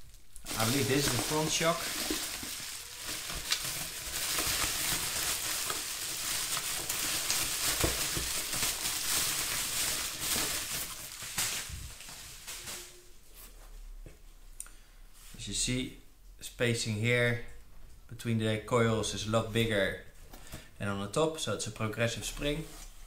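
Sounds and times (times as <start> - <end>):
bubble wrap crinkling: 0.0 - 13.2.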